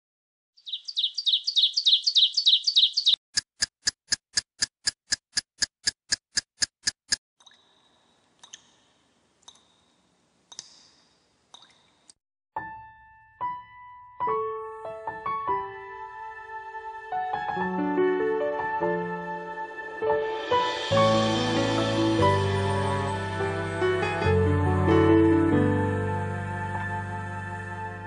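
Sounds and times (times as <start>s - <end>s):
high bird-like chirping: 0.6s - 3.2s
sharp ticks: 2.7s - 7.6s
piano notes: 12.6s - 28.0s.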